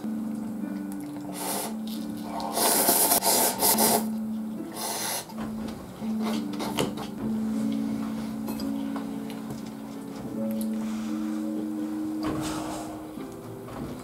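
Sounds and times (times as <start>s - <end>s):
background music: 0.0s - 14.0s
noodles being slurped: 1.2s - 4.2s.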